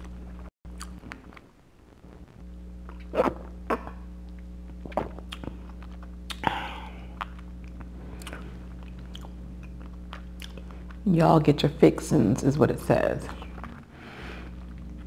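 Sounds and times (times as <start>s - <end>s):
steady low hum: 0.0s - 15.0s
person swallowing: 2.9s - 4.1s, 4.8s - 5.6s
wet lip and mouth clicks: 2.9s - 6.5s, 7.1s - 11.0s
breathy exhale: 13.9s - 14.6s.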